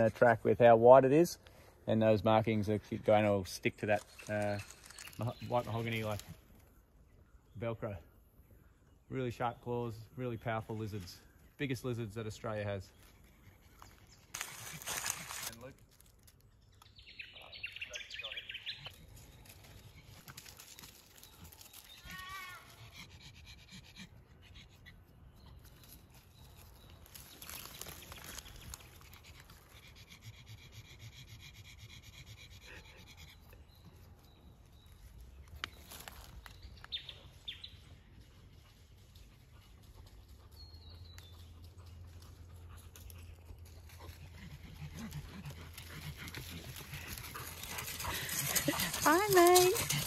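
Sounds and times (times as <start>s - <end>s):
dog panting: 29.0s - 34.0s, 41.5s - 50.0s.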